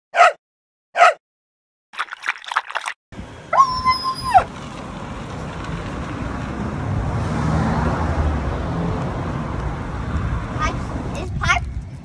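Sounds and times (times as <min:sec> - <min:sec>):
road traffic noise: 0:03.1 - 0:12.0
puppy whining: 0:03.5 - 0:04.5.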